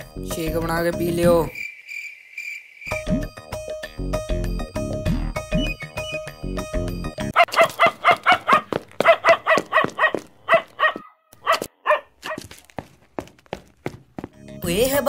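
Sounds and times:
background music: 0.0 - 1.6, 2.9 - 7.4, 14.2 - 15.0
dog barking: 7.4 - 12.5.

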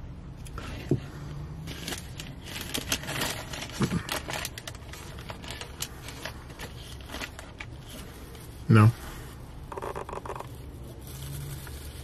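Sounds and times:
paper wrapper crinkling: 1.6 - 8.8, 9.8 - 12.0.

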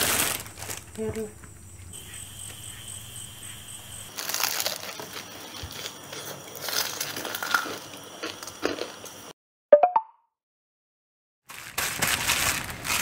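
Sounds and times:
crunching bites of fried chicken: 4.1 - 9.0.

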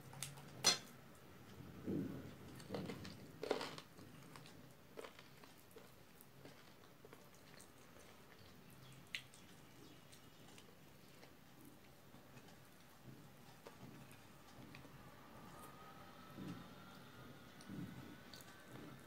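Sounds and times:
quiet chewing: 0.0 - 19.0.

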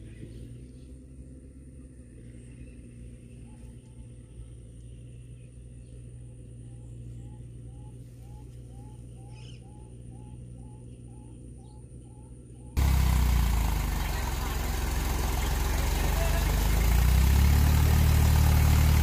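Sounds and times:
bird hooting: 6.7 - 12.7
loud engine sound: 12.8 - 19.0
tractor engine idling: 12.8 - 19.0.

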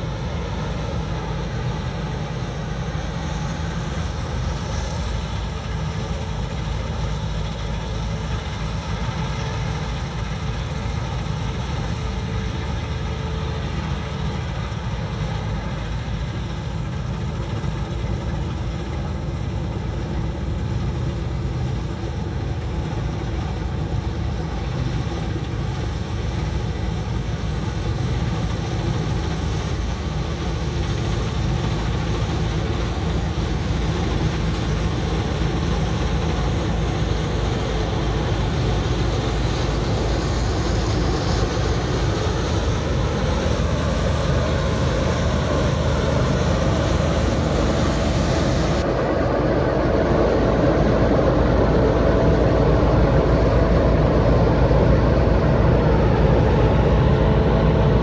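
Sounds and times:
combine harvester engine droning: 0.0 - 58.0.

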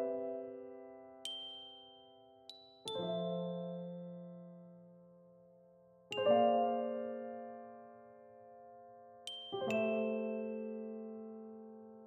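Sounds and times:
soft keyboard chords: 0.0 - 12.0.

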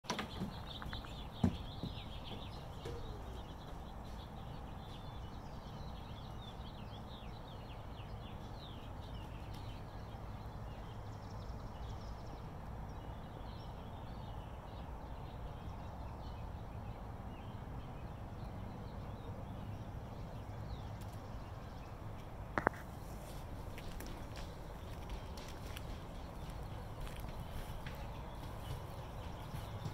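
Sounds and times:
small birds chirping: 0.1 - 29.9
steady low rumble: 15.2 - 29.9.

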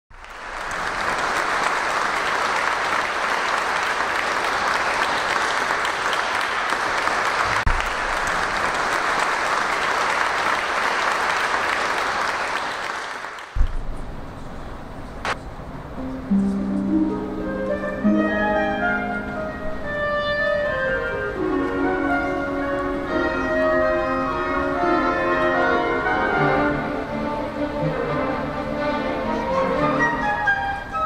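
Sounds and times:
audience applauding: 0.1 - 13.9.

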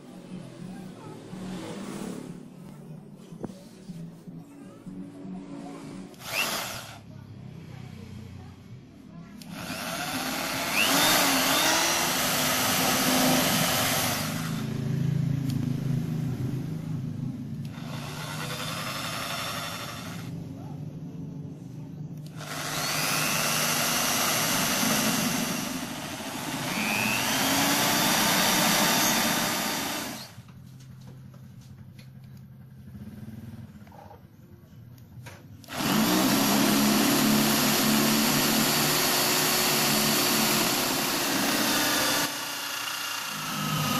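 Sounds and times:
electric drill whining: 6.1 - 7.0, 9.4 - 14.7, 17.6 - 20.3, 22.2 - 30.5, 35.6 - 43.9.

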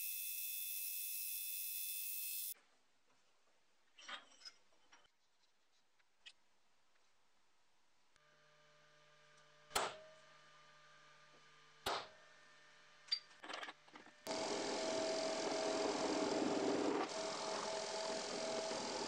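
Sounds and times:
drill drilling into steel: 0.0 - 2.6, 14.3 - 19.0.

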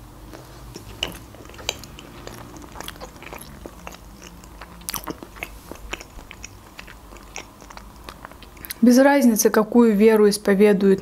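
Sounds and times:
mouth chewing clicks and smacks: 0.3 - 8.8.

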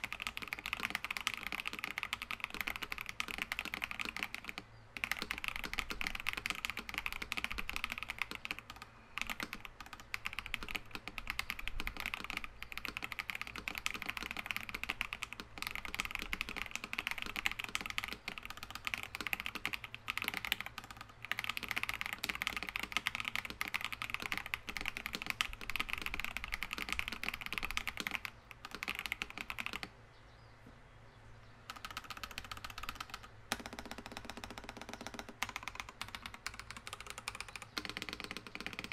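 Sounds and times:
mechanical keyboard typing: 0.0 - 29.9, 31.7 - 38.9.

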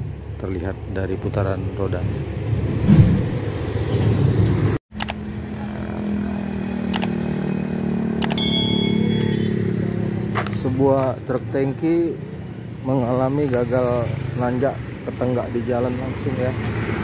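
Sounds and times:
short bell-like chime: 8.3 - 10.0.

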